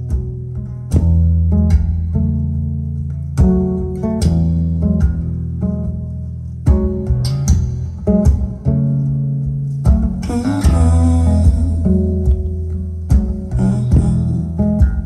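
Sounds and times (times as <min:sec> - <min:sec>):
instrumental music over speakers: 0:00.0 - 0:15.0.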